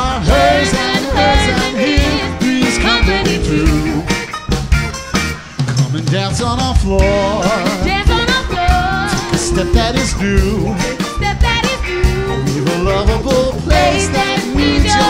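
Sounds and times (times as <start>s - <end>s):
rock band playing: 0.0s - 15.0s
person singing: 5.7s - 15.0s.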